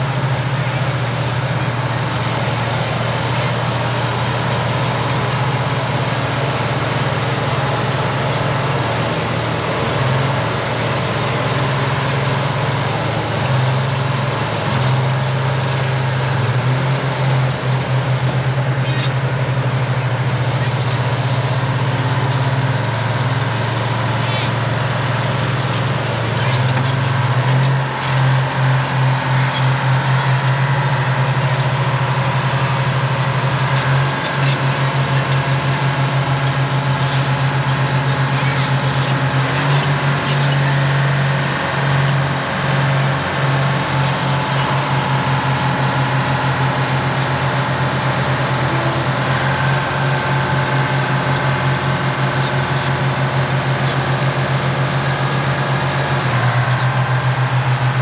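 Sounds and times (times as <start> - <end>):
diesel engines droning: 0.0 - 58.0.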